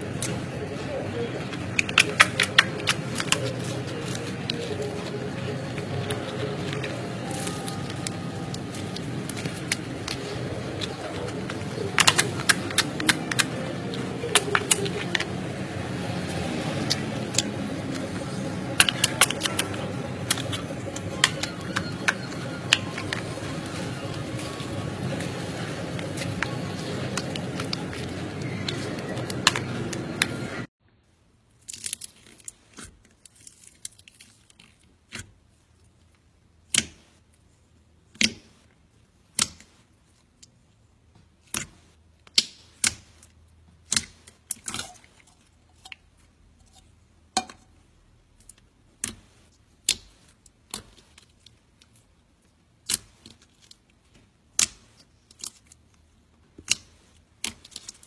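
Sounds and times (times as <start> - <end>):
soft slime crackles: 0.0 - 30.7, 31.5 - 58.0
steady noise: 0.0 - 30.7.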